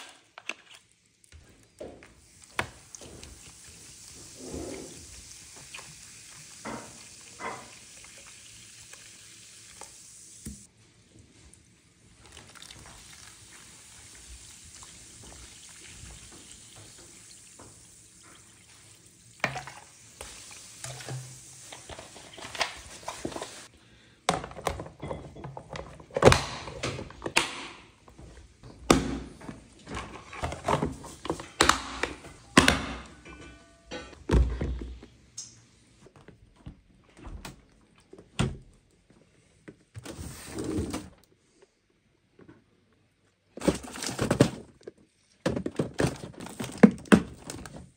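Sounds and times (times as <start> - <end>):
sparkling water fizzing: 2.2 - 10.7, 12.1 - 23.7.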